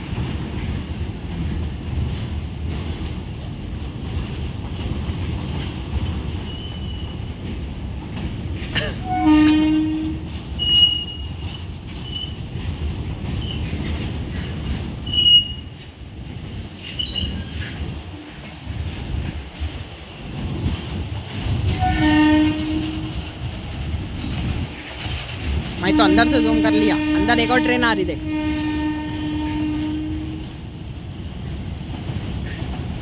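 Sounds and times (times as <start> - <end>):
train wheels rumbling on rail: 0.0 - 33.0
train horn: 9.0 - 11.0, 21.7 - 23.2, 25.8 - 30.6.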